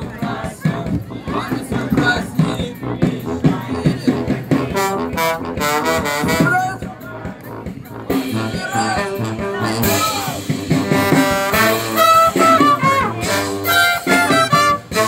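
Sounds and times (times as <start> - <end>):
drum kit: 0.0 - 15.0
tuba: 0.2 - 15.0
trumpets and trombone melody: 1.3 - 15.0.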